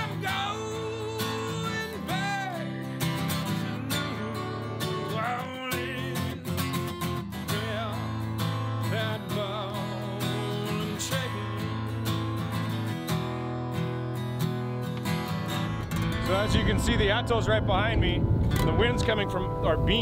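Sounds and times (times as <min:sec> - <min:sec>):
strummed acoustic guitar: 0:00.0 - 0:20.0
wavering melody line: 0:16.2 - 0:20.0.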